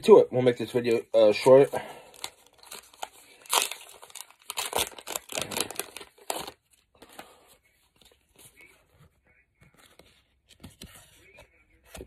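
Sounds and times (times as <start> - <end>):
plastic wrapper tearing and crinkling: 2.1 - 6.8.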